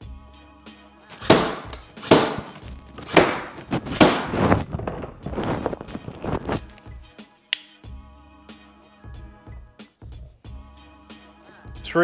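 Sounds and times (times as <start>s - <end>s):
cable stapler snapping shots: 1.1s - 4.4s.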